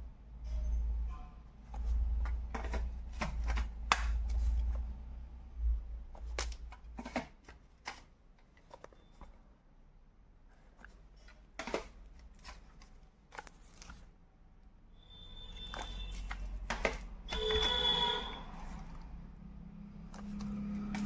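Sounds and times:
plastic cases clicking and knocking: 1.7 - 4.8, 6.1 - 9.3, 10.8 - 14.0, 15.6 - 18.2.

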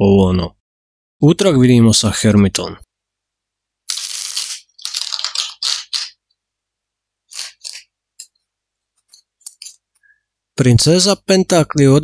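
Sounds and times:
cards being shuffled: 3.9 - 6.2, 7.3 - 8.4.

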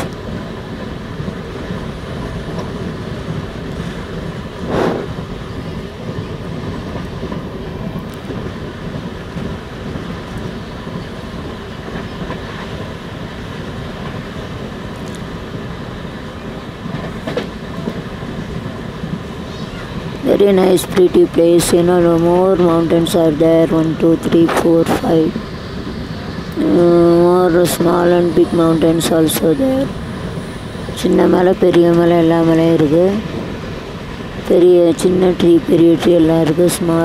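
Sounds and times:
train wheels rumbling and rattling: 0.0 - 37.0.

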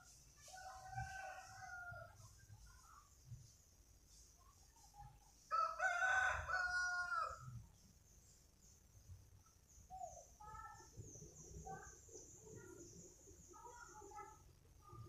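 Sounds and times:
faint high chirping: 0.0 - 15.0
rooster crowing: 5.5 - 7.4.

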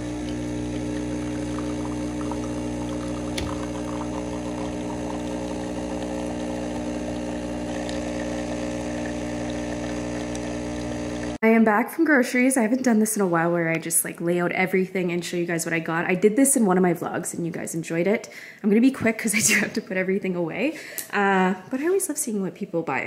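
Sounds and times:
coffee streaming into cup: 0.0 - 11.4
espresso machine pump humming: 0.0 - 11.4.

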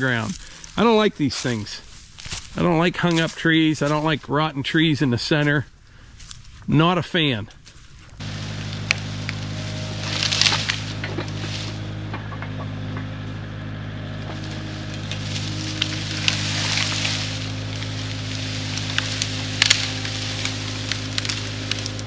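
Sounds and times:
sharp knocks and cracks: 8.2 - 13.2, 14.2 - 22.0
excavator diesel engine running: 8.2 - 22.0.

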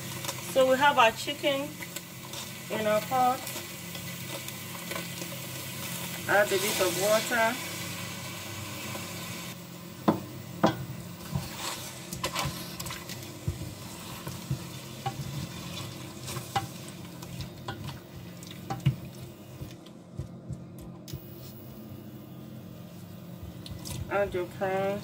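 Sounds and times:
spoon knocking and scraping pot: 10.0 - 12.6, 16.3 - 16.7, 18.7 - 19.0.

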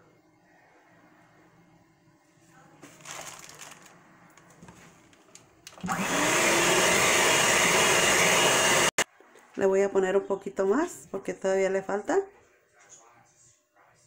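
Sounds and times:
electric hand mixer whisking: 5.8 - 9.0.

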